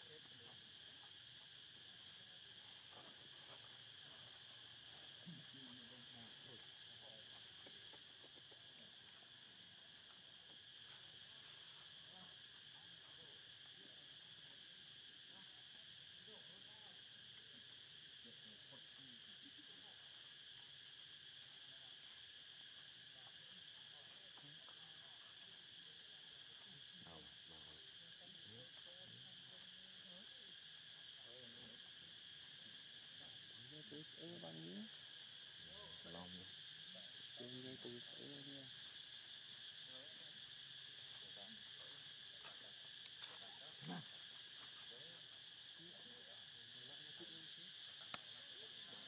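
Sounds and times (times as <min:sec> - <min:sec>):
insects droning in chorus: 0:00.0 - 0:49.0
faint voices: 0:39.9 - 0:49.0.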